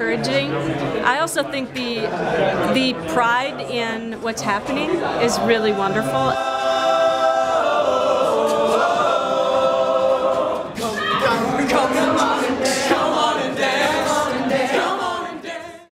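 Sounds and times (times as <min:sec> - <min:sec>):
men's a cappella group singing: 0:04.8 - 0:15.9.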